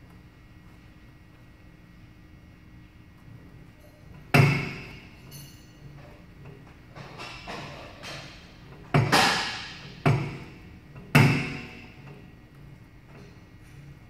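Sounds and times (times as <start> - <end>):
weight stack clanking: 4.2 - 14.0.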